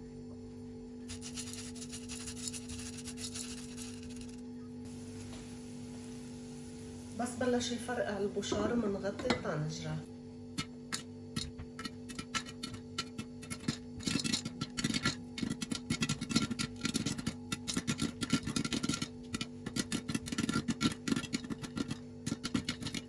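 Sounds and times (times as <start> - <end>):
popcorn popping in a covered pot: 10.5 - 23.0.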